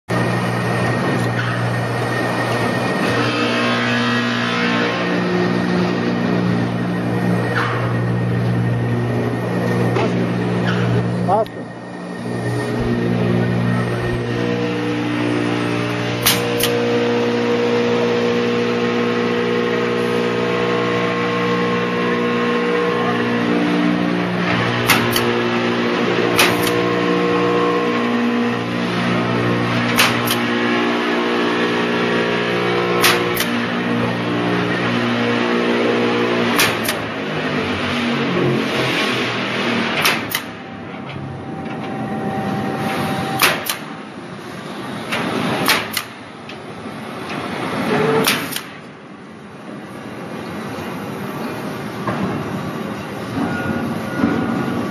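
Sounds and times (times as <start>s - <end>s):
engine droning: 0.1s - 54.9s
pneumatic tool double snap: 16.2s - 16.8s, 24.8s - 25.4s, 26.3s - 26.9s, 29.9s - 30.5s, 33.0s - 33.7s, 36.5s - 37.1s, 40.0s - 40.6s, 43.4s - 43.9s, 45.1s - 46.2s, 47.9s - 48.9s.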